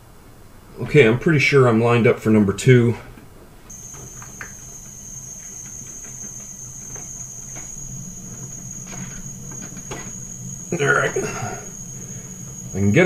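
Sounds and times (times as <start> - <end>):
compressed air hissing and whistling: 3.7 - 13.0
low hum: 3.7 - 13.0.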